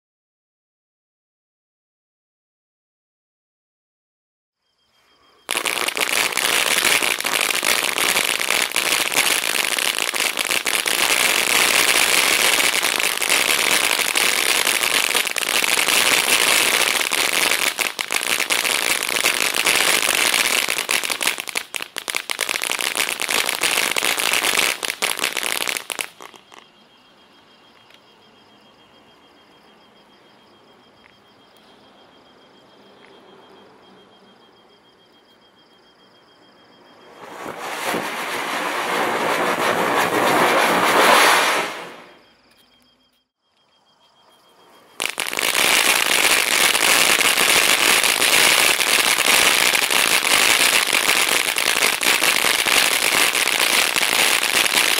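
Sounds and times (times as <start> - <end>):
thin steady high tone: 4.6 - 54.9
firework fountain hissing and crackling: 5.4 - 26.6, 36.9 - 42.2, 44.8 - 54.9.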